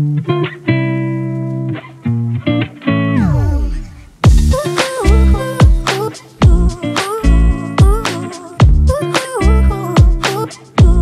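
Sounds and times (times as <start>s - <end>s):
deep bass drum hits: 3.2s - 4.6s, 6.4s - 6.8s.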